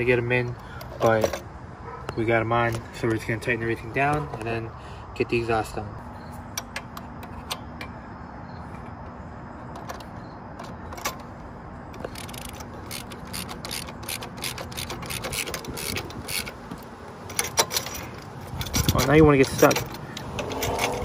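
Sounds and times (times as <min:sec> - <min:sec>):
ratchet wrench clicking: 0:12.0 - 0:21.0.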